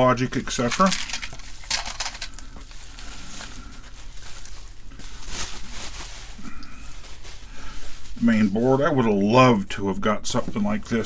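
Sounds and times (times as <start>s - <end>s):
bubble wrap crinkling: 0.6s - 9.4s.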